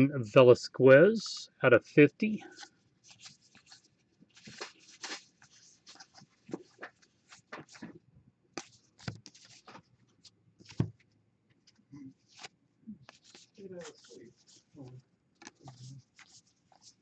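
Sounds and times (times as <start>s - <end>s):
cards sliding and rubbing: 2.4s - 8.0s, 8.6s - 11.0s, 11.7s - 14.8s, 15.4s - 17.0s.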